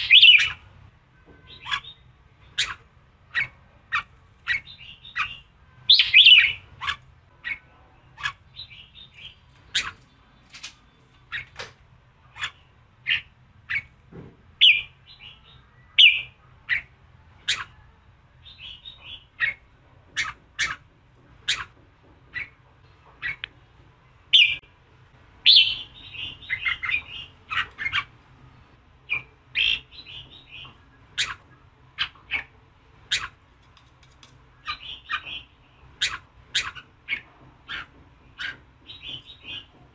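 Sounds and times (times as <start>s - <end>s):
bulbul calling: 0.0s - 0.6s, 1.4s - 7.6s, 8.2s - 10.0s, 21.5s - 21.7s, 25.4s - 28.1s, 29.1s - 32.5s, 33.1s - 33.4s, 34.6s - 39.7s.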